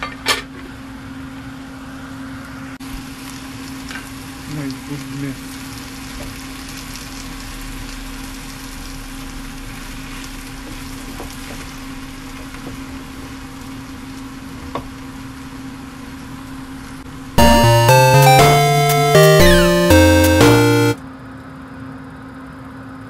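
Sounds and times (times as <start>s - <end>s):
vegetables sizzling in a frying pan: 2.8s - 17.1s
background music: 17.4s - 21.0s.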